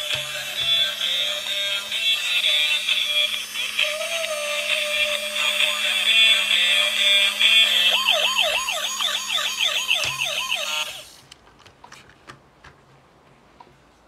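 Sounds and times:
toy electronic siren wailing: 0.1s - 11.1s.

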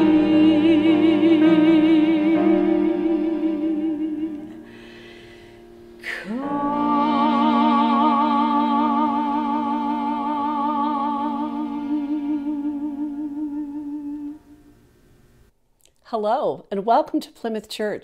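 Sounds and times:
woman singing with vibrato: 0.0s - 5.0s, 6.0s - 14.6s
cello: 0.0s - 14.4s.

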